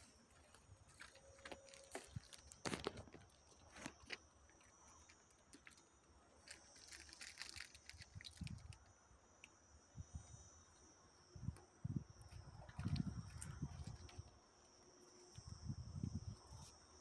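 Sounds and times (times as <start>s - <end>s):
footsteps on dry ground: 0.0s - 4.2s
light crackles: 0.0s - 9.6s
high insect buzz: 0.0s - 17.0s.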